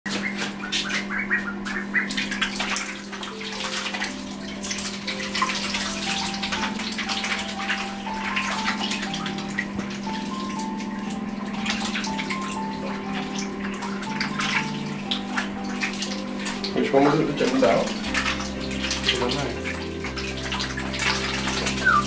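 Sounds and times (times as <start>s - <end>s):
ducks paddling in water: 0.1s - 22.0s
soft background music: 0.1s - 22.0s
water splashing and sloshing: 0.1s - 22.0s.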